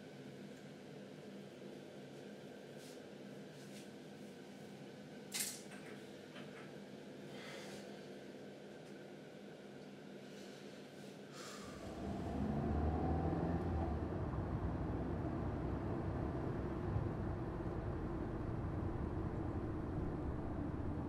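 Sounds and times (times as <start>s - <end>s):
vehicle rumble from inside cabin: 11.7s - 21.0s.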